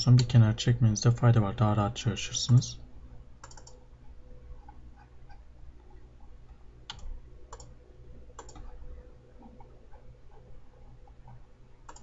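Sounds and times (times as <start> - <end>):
faint steady hum: 0.0 - 12.0
computer mouse clicks: 3.4 - 3.8, 6.9 - 8.8, 11.1 - 12.0.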